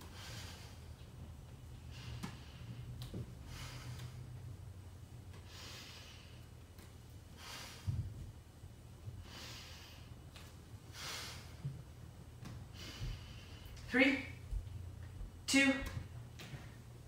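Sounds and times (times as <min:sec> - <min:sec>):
person breathing hard: 0:00.0 - 0:01.1, 0:01.8 - 0:04.5, 0:05.4 - 0:06.6, 0:07.2 - 0:08.2, 0:09.1 - 0:10.2, 0:10.8 - 0:11.8, 0:12.6 - 0:13.9.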